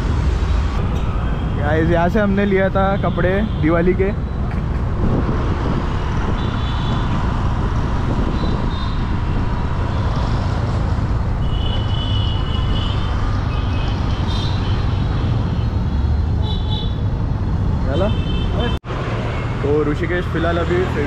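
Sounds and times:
traffic rumble: 0.0s - 21.0s.

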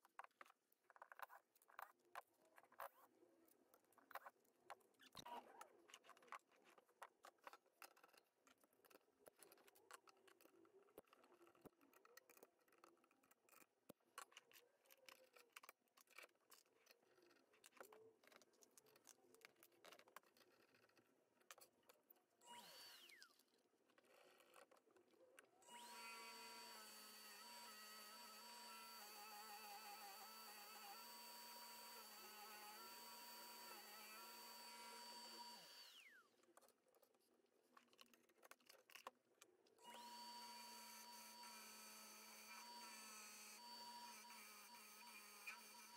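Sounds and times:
lathe motor hum with whine: 25.7s - 36.2s, 39.8s - 45.9s.

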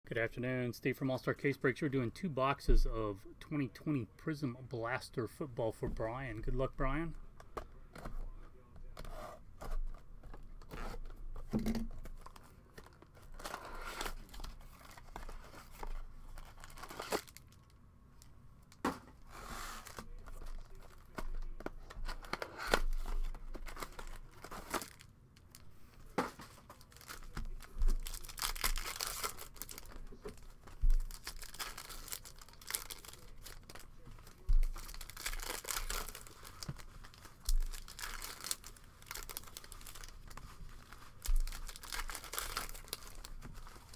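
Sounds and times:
foil packs crinkling: 12.1s - 17.7s, 19.8s - 25.7s, 26.4s - 43.9s
plastic shrink-wrap tearing: 26.7s - 43.9s.

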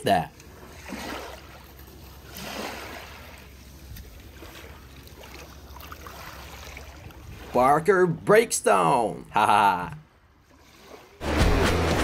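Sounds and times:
water sloshing and splashing: 0.3s - 8.2s, 10.1s - 11.2s.

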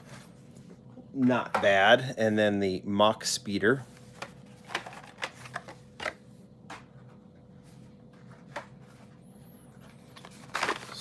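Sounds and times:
faint steady hum: 0.0s - 11.0s
plastic packaging clicks and rustles: 10.1s - 11.0s.

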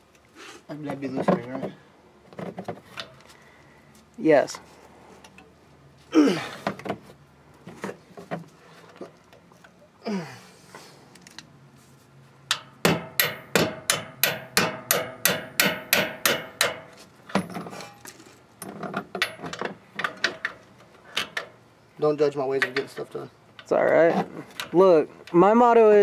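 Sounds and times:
metal-on-metal strikes: 12.5s - 17.7s.

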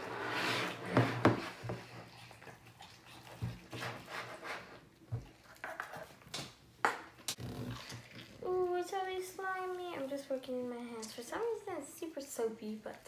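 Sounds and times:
slime squelching: 7.3s - 11.5s.

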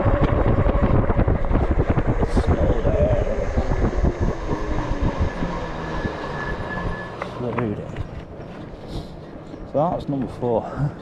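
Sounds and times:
electric motor whine: 0.0s - 7.6s
wind buffeting microphone: 0.0s - 8.8s.

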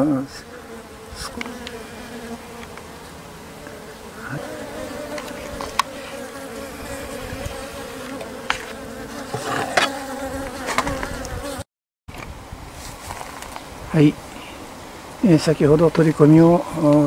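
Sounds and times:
bees humming in hive: 0.0s - 11.6s.

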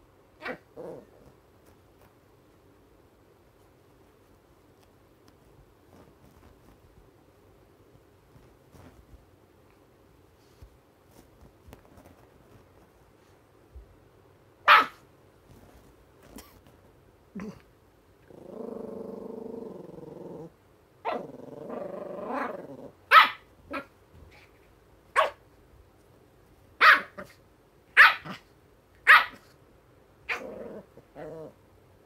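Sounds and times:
puppy play-growling: 0.4s - 2.1s, 17.3s - 24.7s, 30.2s - 31.6s
puppy barking: 14.6s - 15.0s, 23.1s - 23.9s, 25.2s - 25.4s, 26.8s - 27.4s, 28.0s - 28.4s, 29.0s - 29.5s.

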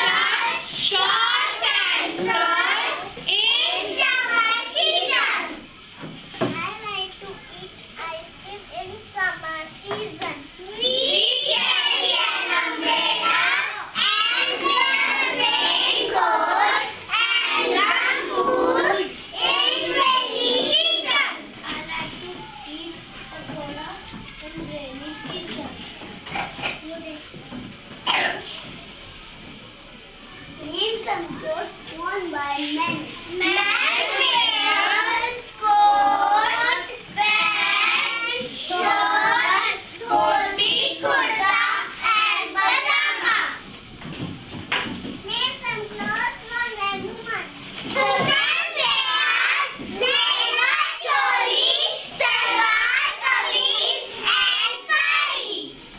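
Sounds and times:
children singing together: 0.0s - 6.0s, 9.9s - 21.5s, 32.9s - 43.9s, 47.9s - 55.9s.

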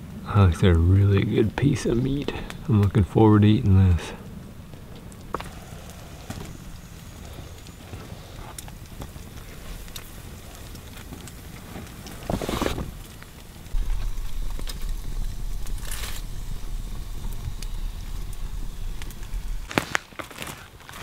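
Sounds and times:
low steady rumble: 0.0s - 20.5s
plastic tarp rustling: 7.9s - 21.0s.

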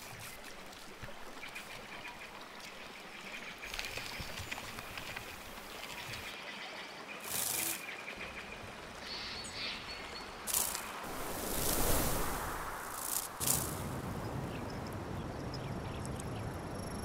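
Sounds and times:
short hissing rushes: 10.5s - 14.0s.

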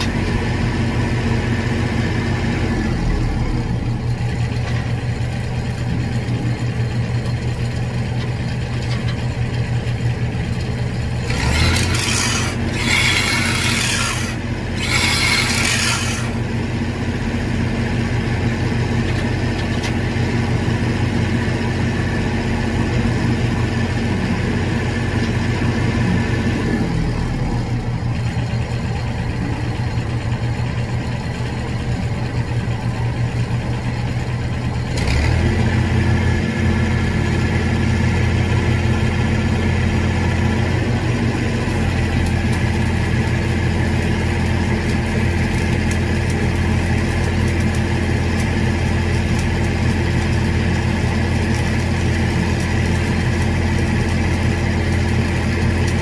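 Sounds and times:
welding machine engine running: 0.0s - 56.0s
welding arc crackling: 11.1s - 16.4s, 41.2s - 56.0s.

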